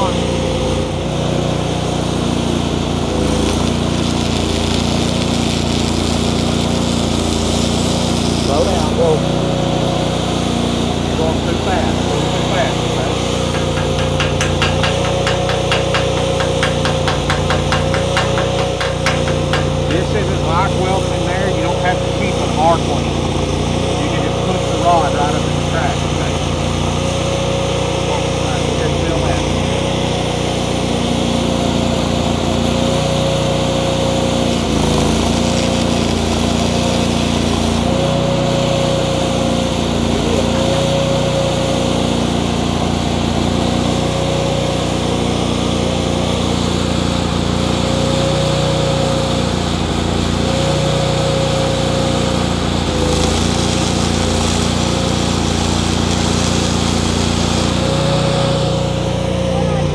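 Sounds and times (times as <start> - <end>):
welder generator engine running: 0.0 - 59.9
welding arc crackling: 0.0 - 59.9.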